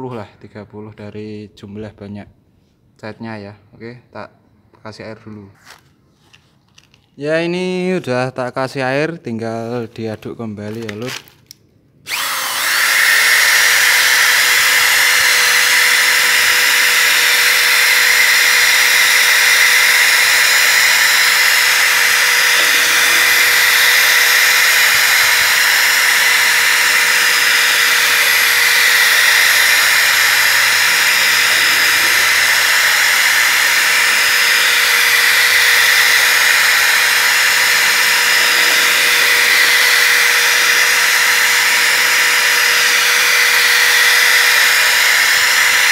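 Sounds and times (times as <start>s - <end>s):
electric drill motor whine: 12.1s - 45.9s.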